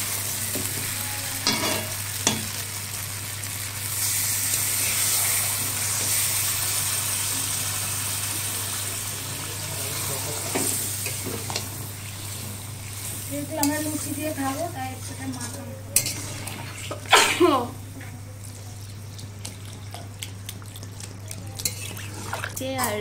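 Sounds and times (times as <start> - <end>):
food sizzling in oil: 0.0 - 23.0
metal spatula scraping pan: 13.6 - 17.1.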